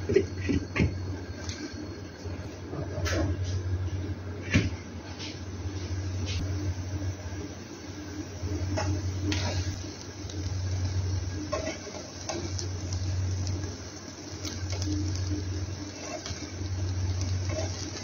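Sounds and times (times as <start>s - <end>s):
steady low hum: 0.0s - 18.0s
spatula scraping a frying pan: 11.5s - 12.4s, 17.5s - 17.8s.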